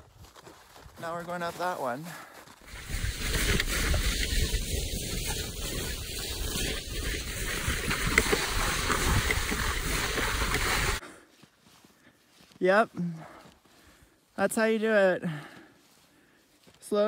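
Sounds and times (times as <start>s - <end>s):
snow hissing under sled: 2.7s - 11.0s
wind rushing over microphone: 2.7s - 11.0s.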